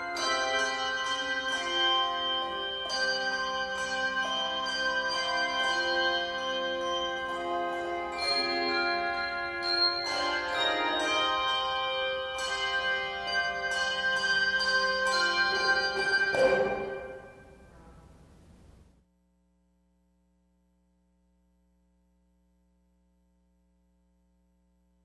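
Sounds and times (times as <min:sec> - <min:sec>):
tuned bells ringing: 0:00.0 - 0:17.7.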